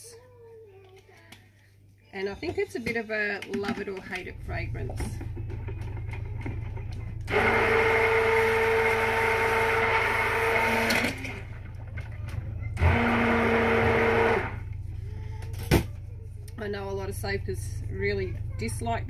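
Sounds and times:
stick blender motor whine: 0:04.5 - 0:11.7, 0:12.7 - 0:14.8.

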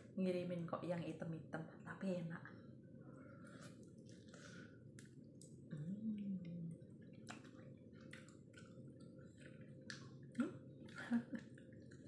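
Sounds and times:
wet chewing mouth sounds: 0:03.5 - 0:12.0
person humming: 0:05.7 - 0:06.8.

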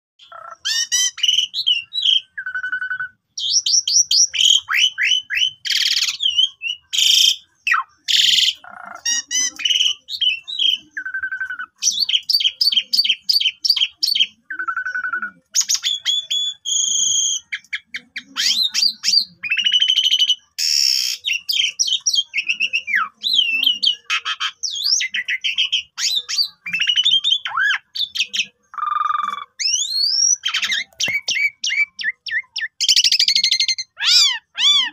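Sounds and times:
starling singing whistles and trills: 0:00.2 - 0:34.9.

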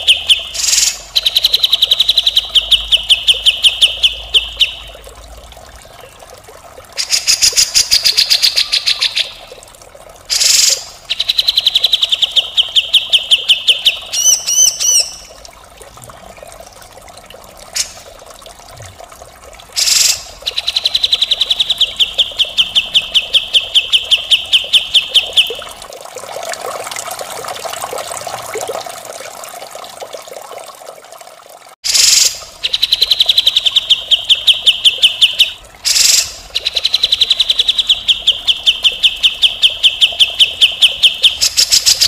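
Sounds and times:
bird singing fast trills: 0:00.0 - 0:04.9, 0:10.3 - 0:15.3, 0:19.8 - 0:25.6, 0:31.9 - 0:42.0.

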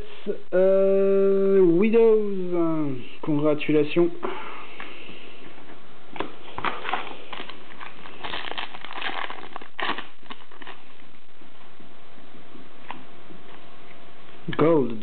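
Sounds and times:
trading cards rustling: 0:06.2 - 0:11.0.

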